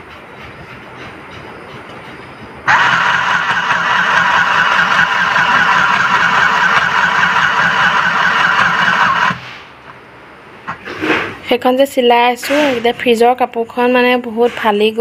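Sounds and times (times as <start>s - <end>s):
sewing machine motor stitching: 2.7s - 9.4s.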